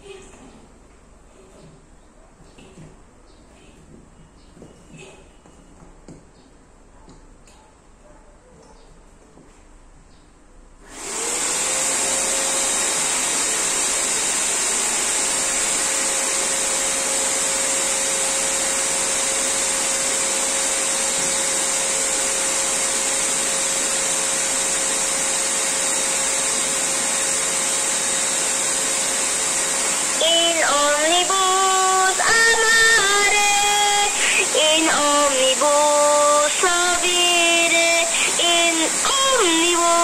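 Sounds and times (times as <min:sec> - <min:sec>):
electric inflator motor whine: 0:10.8 - 0:40.0.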